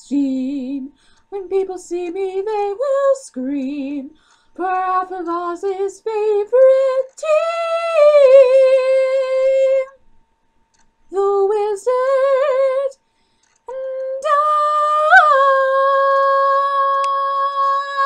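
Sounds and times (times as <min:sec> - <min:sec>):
girl singing a cappella: 0:00.0 - 0:10.0, 0:11.1 - 0:13.0, 0:13.7 - 0:18.0.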